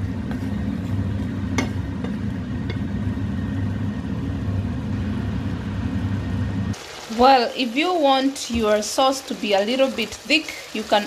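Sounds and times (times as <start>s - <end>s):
curry cooking low rumble: 0.0s - 11.0s.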